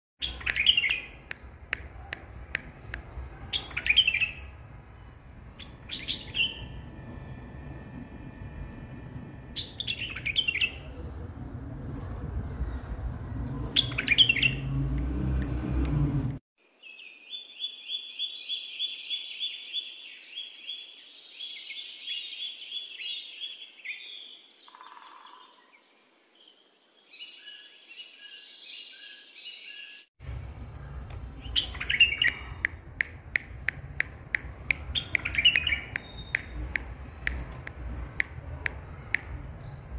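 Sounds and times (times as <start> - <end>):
bird whistling song: 0.2 - 1.2, 5.6 - 6.8, 9.6 - 10.8, 13.8 - 14.6, 34.9 - 36.6
bird chirps: 0.2 - 1.3, 5.4 - 10.9, 13.7 - 14.7, 16.8 - 30.1, 30.7 - 32.8, 34.3 - 36.9
low rumble: 2.2 - 16.4.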